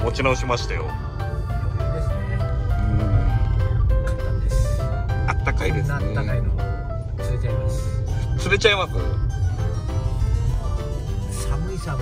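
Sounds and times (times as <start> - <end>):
background music with held notes: 0.0 - 12.0
car driving rumble: 0.0 - 12.0.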